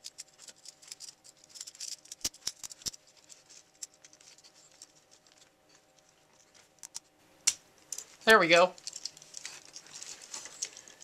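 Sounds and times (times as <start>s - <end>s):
plastic toy clicking and scraping: 0.0s - 6.1s.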